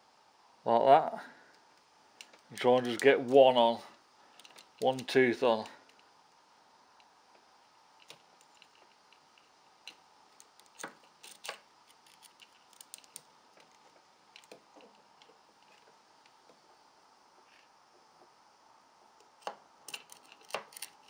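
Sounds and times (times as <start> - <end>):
metallic chain clicks: 9.9 - 13.3.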